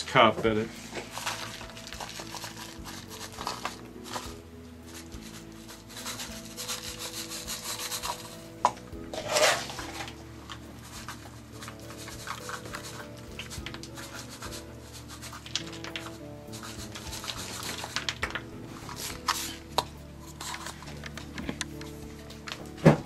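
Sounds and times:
grit rattling onto plaster: 9.1s - 21.1s.

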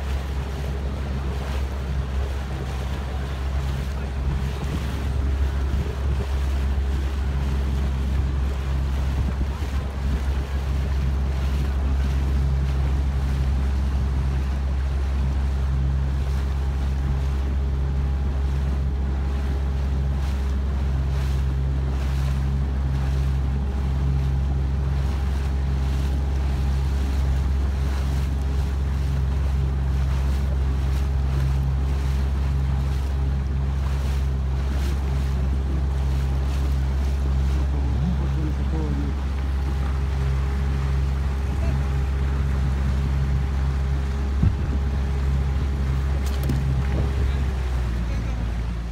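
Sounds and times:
wind buffeting microphone: 0.0s - 48.0s
motorboat engine droning: 0.0s - 48.9s
water washing past: 0.0s - 48.9s.

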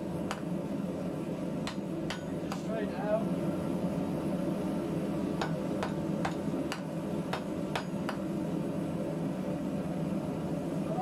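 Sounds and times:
wooden mallet knocking hot metal: 0.3s - 0.5s, 1.6s - 2.7s, 5.4s - 8.3s.

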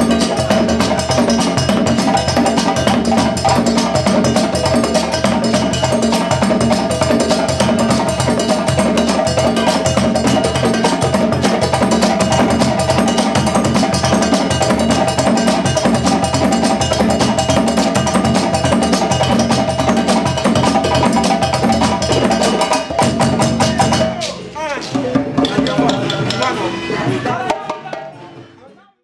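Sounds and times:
hand drums playing fast rhythm: 0.0s - 28.5s
balafon ringing: 25.1s - 28.6s.

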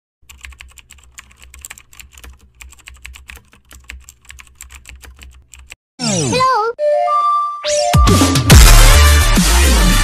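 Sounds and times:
keyboard typing: 0.2s - 5.8s.

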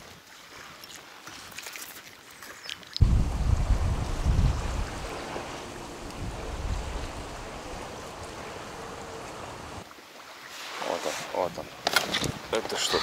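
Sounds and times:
wind buffeting microphone: 3.0s - 9.8s
steady rush of wind: 3.0s - 9.9s.

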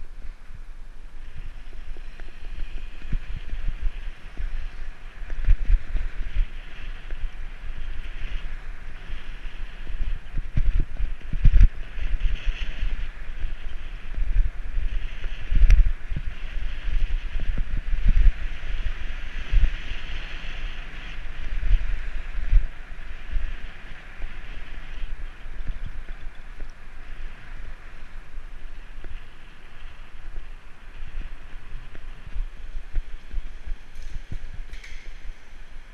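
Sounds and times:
tyre and road noise: 0.0s - 35.9s
wind rumbling on microphone: 0.0s - 35.9s
sharp click: 34.0s - 35.2s.

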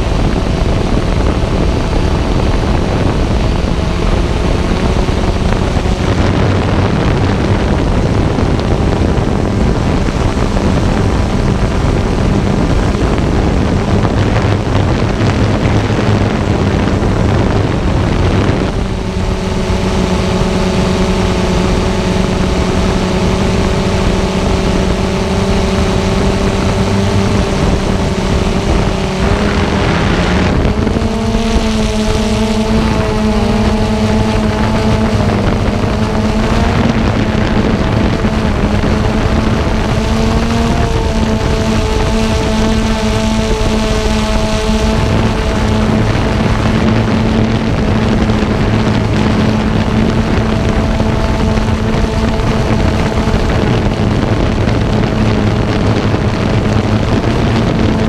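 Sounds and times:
air rushing over microphone: 0.0s - 58.0s
drone motors humming: 0.0s - 58.0s.

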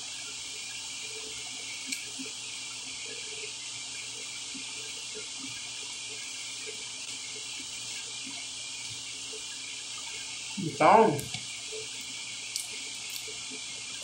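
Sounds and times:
steady hiss: 0.0s - 14.0s.

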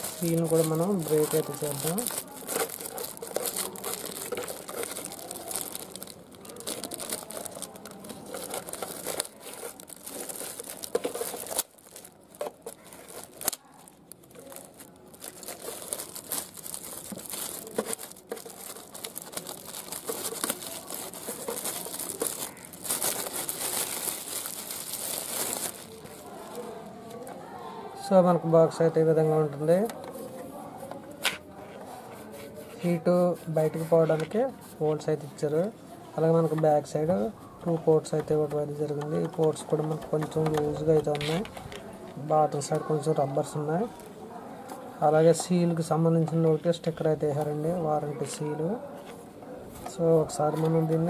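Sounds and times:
plastic wrapping crinkling: 0.0s - 27.3s, 36.2s - 49.2s.

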